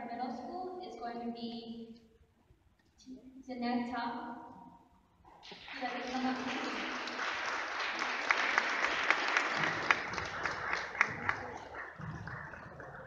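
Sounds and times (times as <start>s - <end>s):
sharp individual claps: 5.3s - 13.0s
audience applauding: 5.4s - 13.0s.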